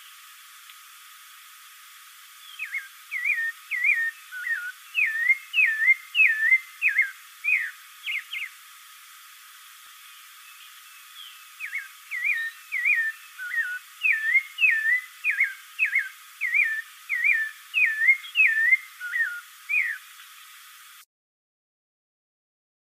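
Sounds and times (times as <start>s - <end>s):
thrush whistled song notes: 2.4s - 8.5s, 10.5s - 20.1s.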